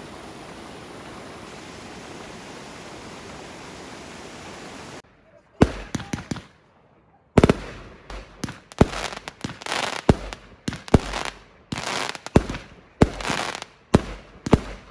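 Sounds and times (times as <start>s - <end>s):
crackling hiss of fireworks: 0.0s - 5.0s, 5.6s - 6.7s, 7.4s - 14.9s
fireworks bangs: 5.6s - 6.6s, 7.4s - 14.9s.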